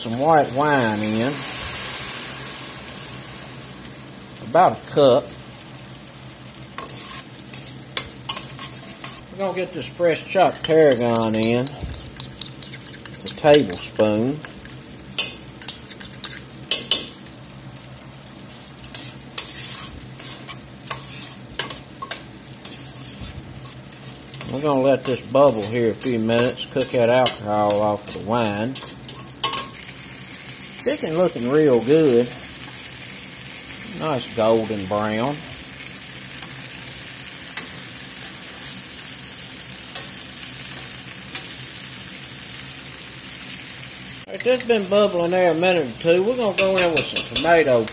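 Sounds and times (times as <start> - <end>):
liquid simmering and sizzling: 0.0 - 47.9
tongs scraping metal pot: 6.8 - 17.1, 18.8 - 29.8, 44.3 - 47.9.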